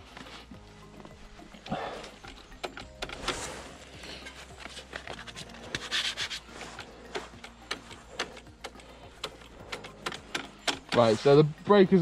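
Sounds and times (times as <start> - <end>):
scratchy rubbing: 3.1 - 7.9.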